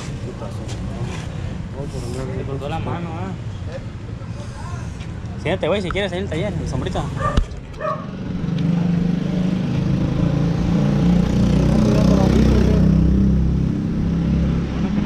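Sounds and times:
vehicle engine humming: 0:05.9 - 0:15.0.

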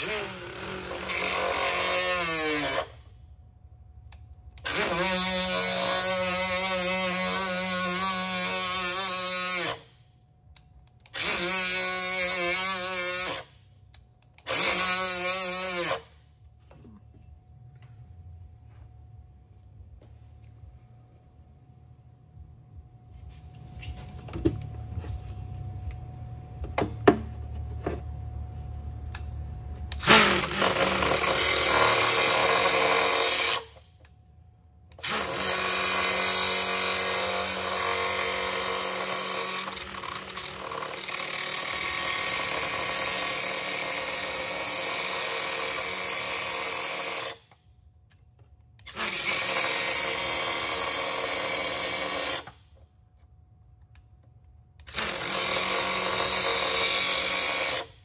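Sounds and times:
cutoff wheel cutting metal: 0:00.0 - 0:02.9, 0:04.6 - 0:09.9, 0:11.1 - 0:13.5, 0:14.4 - 0:16.1, 0:29.9 - 0:33.8, 0:35.0 - 0:47.5, 0:54.8 - 0:58.0
low hum: 0:16.1 - 0:32.6.

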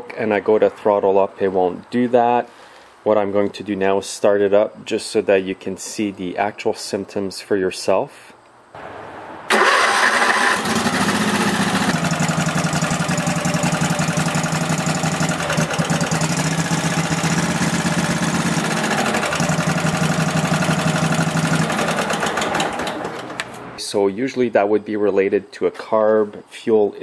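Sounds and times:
lawn tractor engine running: 0:09.5 - 0:23.7
lawn tractor engine starting: 0:09.5 - 0:23.7.

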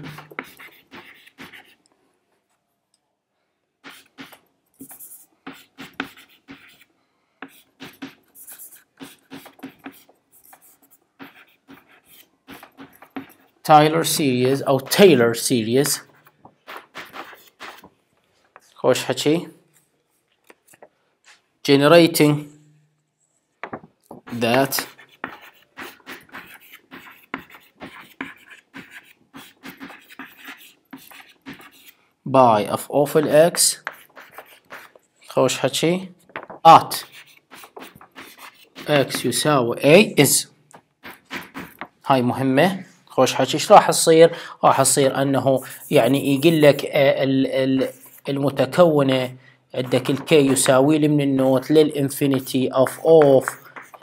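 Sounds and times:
chalk writing on a blackboard: 0:00.0 - 0:01.8, 0:03.8 - 0:13.6, 0:15.8 - 0:17.8, 0:24.3 - 0:32.0, 0:33.2 - 0:35.2, 0:36.9 - 0:39.3, 0:41.0 - 0:41.9, 0:52.3 - 0:54.0.

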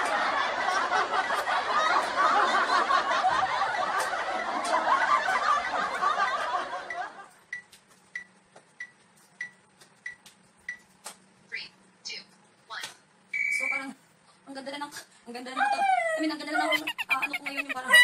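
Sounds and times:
crowd laughing: 0:00.0 - 0:07.4, 0:16.6 - 0:18.0.

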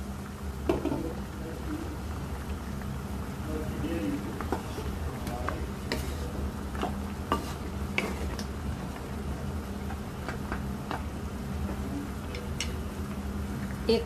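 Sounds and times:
broth bubbling in a wok: 0:00.0 - 0:14.0
steady low hum: 0:00.0 - 0:14.0
spatula knocking and scraping pan: 0:06.8 - 0:08.4.

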